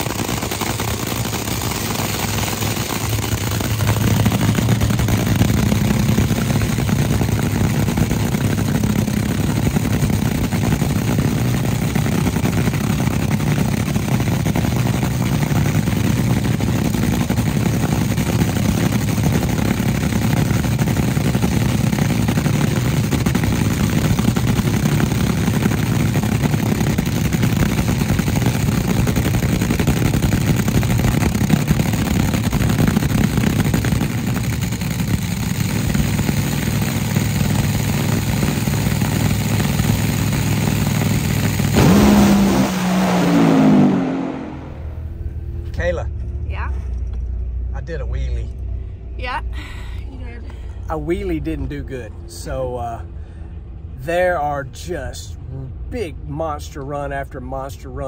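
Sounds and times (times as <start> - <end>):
dragster engine idling loudly: 0.0 - 45.9.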